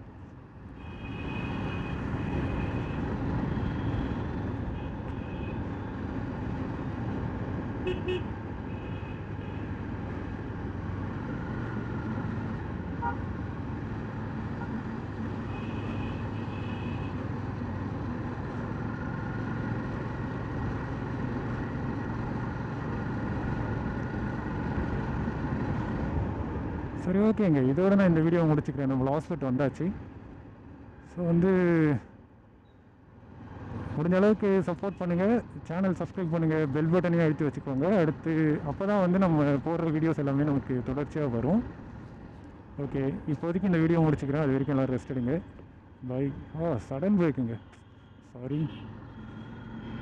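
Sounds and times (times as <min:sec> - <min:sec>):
motorcycle engine and road noise: 0:00.0 - 0:50.0
vehicle horns tooting: 0:07.8 - 0:09.7.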